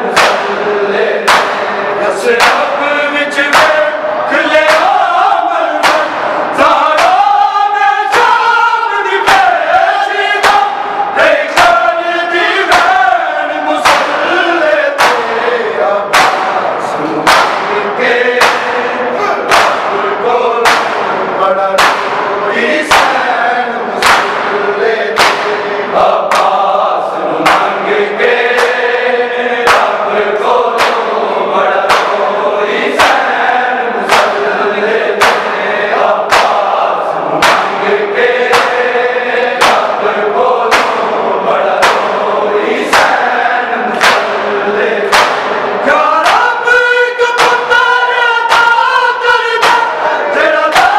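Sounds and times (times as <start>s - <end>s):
men singing in a group: 0.0s - 50.9s
rhythmic chest slapping: 0.0s - 50.9s.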